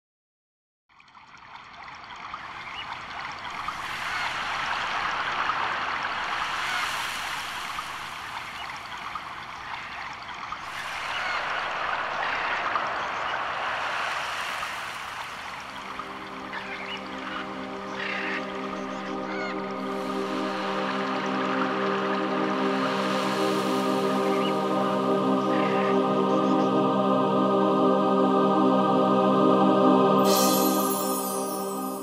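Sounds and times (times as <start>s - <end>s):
rushing hissing noise: 10.6s - 26.2s
sustained musical notes: 15.9s - 32.0s.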